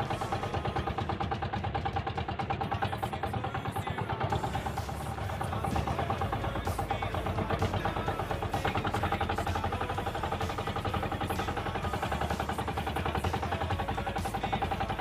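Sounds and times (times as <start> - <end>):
boat engine puttering: 0.0 - 15.0.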